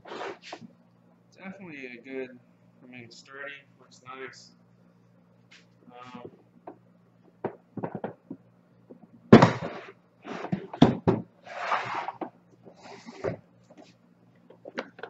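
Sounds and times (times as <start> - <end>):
plastic box scraping: 11.5 - 13.4.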